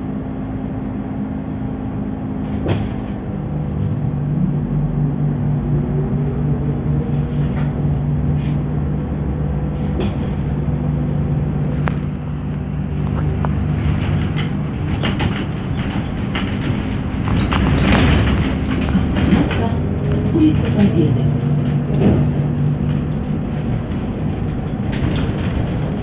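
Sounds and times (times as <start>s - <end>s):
trolleybus electrical hum and whine: 0.0s - 26.0s
rushing noise: 1.9s - 26.0s
clicks and rattles: 11.8s - 26.0s.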